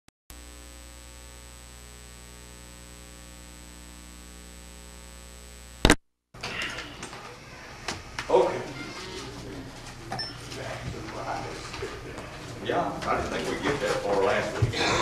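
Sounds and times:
electrical mains hum: 0.3s - 15.0s.

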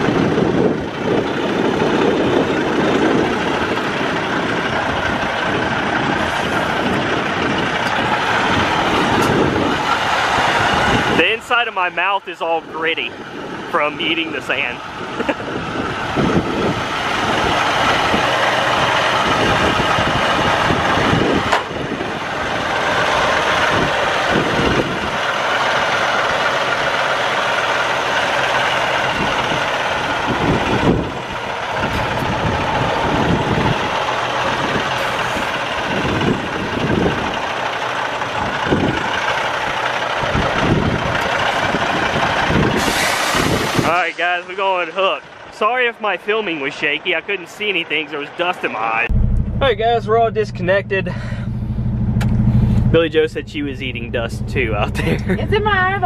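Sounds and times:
wind buffeting microphone: 0.0s - 11.4s, 14.8s - 25.3s, 28.9s - 37.6s, 38.2s - 43.9s
diesel truck engine running: 0.0s - 45.5s, 49.0s - 56.0s.

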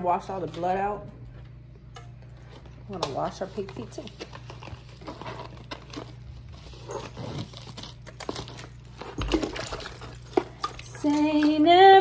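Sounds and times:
cling wrap crinkling and tearing: 3.5s - 10.6s.

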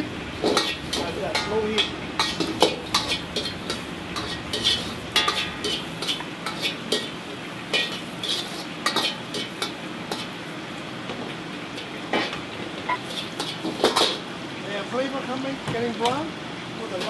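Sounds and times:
metal ladle scraping wok: 0.0s - 10.4s, 12.2s - 14.3s
light sizzle: 0.0s - 17.0s.

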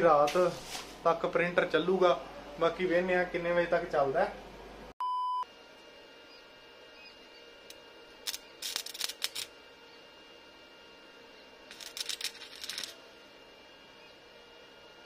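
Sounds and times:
arc welding crackling: 0.0s - 1.7s, 7.6s - 9.8s, 11.6s - 13.0s
electronic beep: 5.0s - 5.4s.

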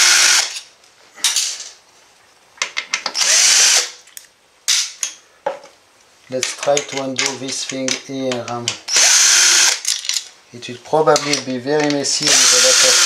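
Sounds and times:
cordless drill spinning: 0.0s - 0.6s, 3.2s - 3.9s, 8.9s - 9.8s, 12.2s - 13.0s.

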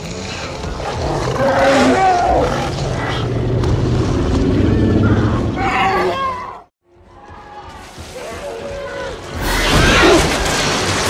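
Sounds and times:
monster creature cries: 1.1s - 3.0s.

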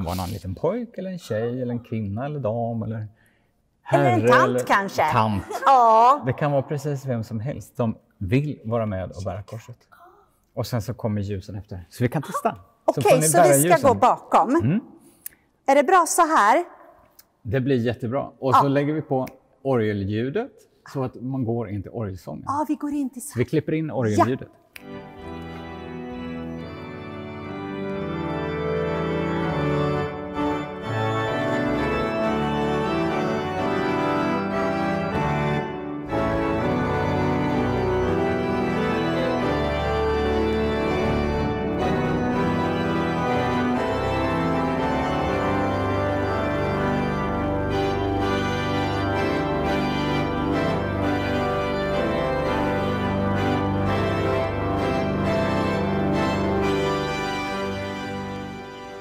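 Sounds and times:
organ chords: 0.0s - 0.4s, 3.9s - 7.3s, 13.0s - 14.8s, 24.0s - 59.0s.

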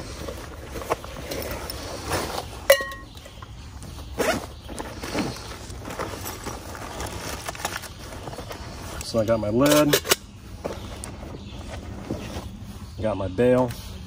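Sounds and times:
rustling of pack: 0.0s - 14.0s
metal clink: 2.7s - 3.1s.

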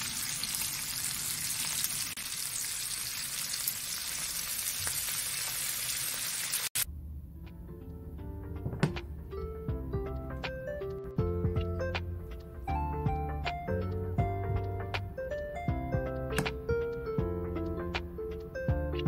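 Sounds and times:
shrimp sizzling in oil: 0.0s - 6.8s
soft background music: 6.9s - 19.0s.

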